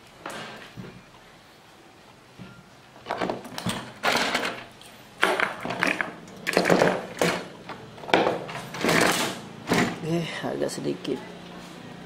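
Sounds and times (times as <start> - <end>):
metal case clattering and scraping: 3.0 - 7.5, 8.1 - 10.0.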